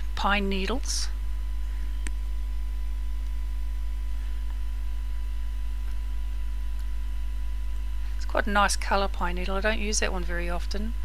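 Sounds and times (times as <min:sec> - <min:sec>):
electrical mains hum: 0:00.0 - 0:11.0
faint click: 0:02.0 - 0:02.2.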